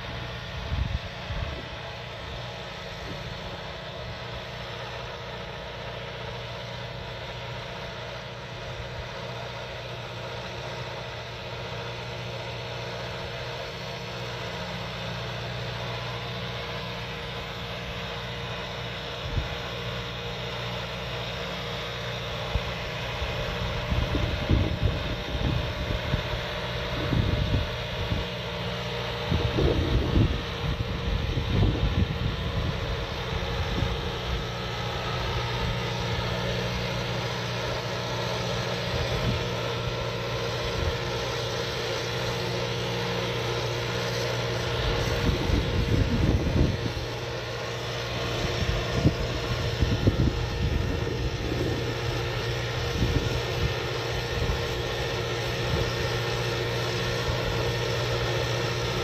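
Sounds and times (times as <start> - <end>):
tractor diesel engine running: 0.0 - 59.0
wind buffeting microphone: 23.7 - 28.3, 29.2 - 34.4, 44.8 - 47.2, 48.4 - 54.8.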